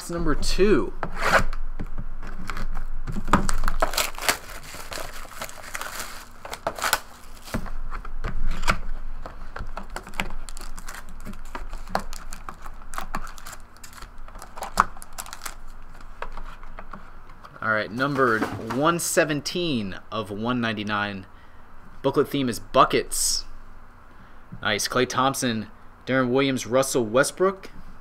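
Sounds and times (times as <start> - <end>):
cardboard and plastic rustling: 2.2 - 17.0, 17.9 - 19.0.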